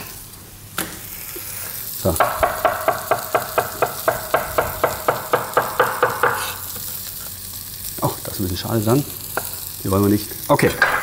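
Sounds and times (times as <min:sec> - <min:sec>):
onions sizzling in a pan: 0:00.0 - 0:11.0.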